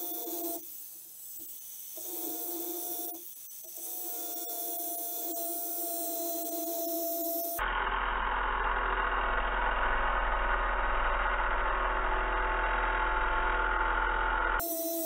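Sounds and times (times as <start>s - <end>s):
angle grinder cutting metal: 8.6s - 15.0s.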